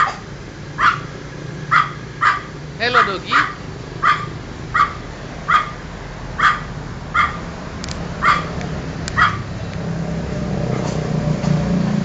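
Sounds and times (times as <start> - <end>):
small dog barking: 0.8 - 5.8, 6.4 - 7.4, 8.2 - 8.6, 9.2 - 9.5.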